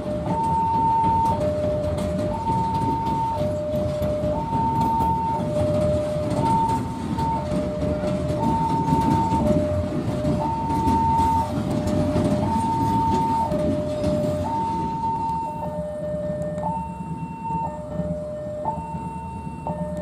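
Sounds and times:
level crossing two-tone alarm: 0:00.0 - 0:20.0
rumble of hopper wagons: 0:00.0 - 0:20.0.

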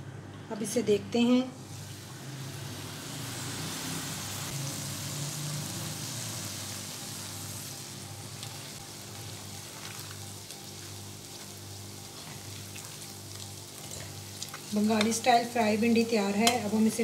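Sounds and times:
vegetables sizzling in oil: 0:01.6 - 0:17.0.

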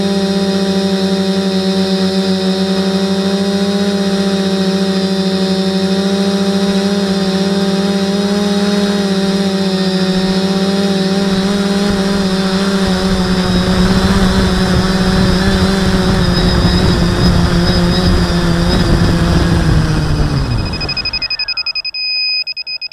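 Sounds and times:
drone motors humming: 0:00.0 - 0:22.9
rushing noise: 0:11.1 - 0:22.1.

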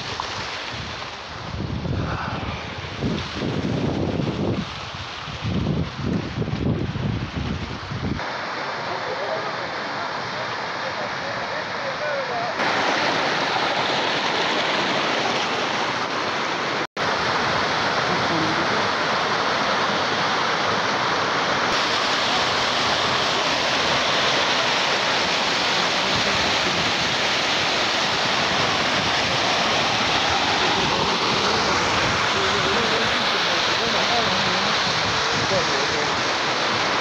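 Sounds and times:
waterfall rushing: 0:08.2 - 0:37.0.

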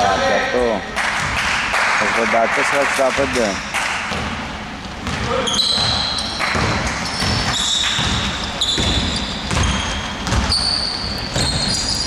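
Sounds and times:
sneakers squeaking on floor: 0:03.5 - 0:12.0
basketball dribbling on hardwood: 0:04.1 - 0:10.7.

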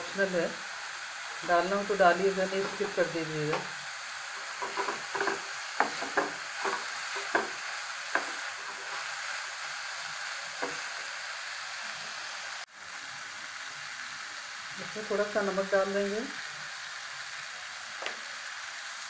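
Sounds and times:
vegetables sizzling in oil: 0:00.0 - 0:19.0
wooden spatula scraping a pan: 0:02.4 - 0:03.6, 0:04.4 - 0:09.3.

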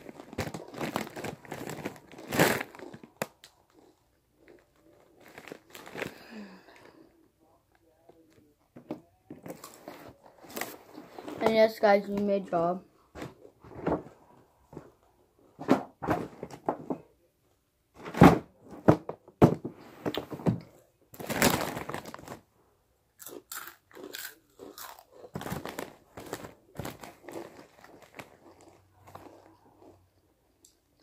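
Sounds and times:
chips being crunched: 0:23.2 - 0:29.4.

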